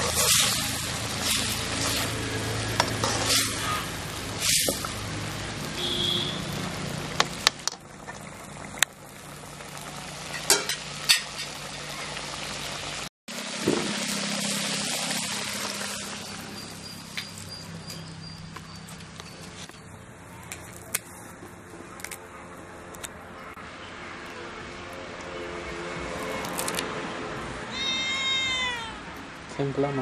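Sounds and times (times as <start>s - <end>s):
curry simmering and sizzling: 0.0s - 19.2s.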